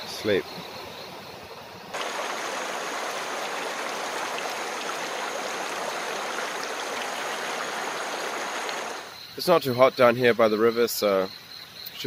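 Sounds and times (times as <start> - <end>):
stream rushing over rocks: 2.0 - 9.1.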